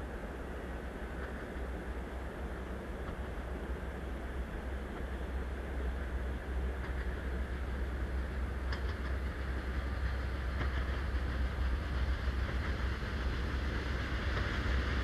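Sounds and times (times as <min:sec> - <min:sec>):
diesel locomotive engine drone: 0:00.0 - 0:15.0
faint clicks: 0:08.6 - 0:09.2.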